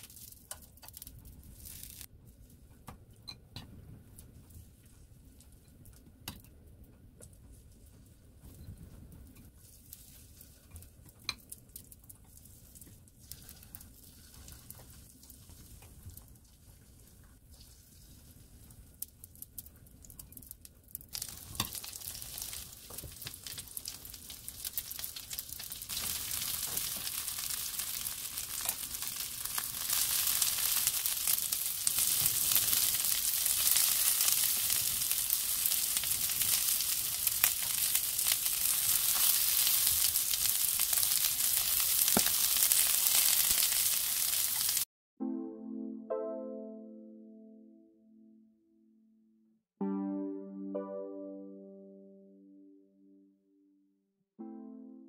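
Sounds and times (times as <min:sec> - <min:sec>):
oil sizzling in pan: 0:00.0 - 0:02.1, 0:21.1 - 0:44.9.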